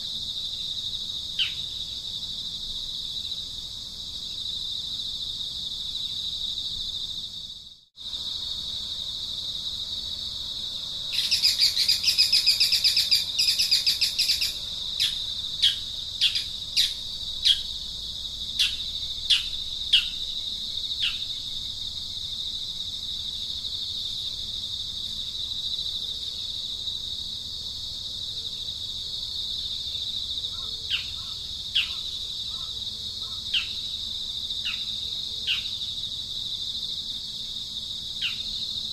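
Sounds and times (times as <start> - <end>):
high-pitched insect drone: 0.0 - 28.4
bird chirping: 1.4 - 2.0, 11.2 - 17.7, 18.6 - 20.3, 30.6 - 33.8.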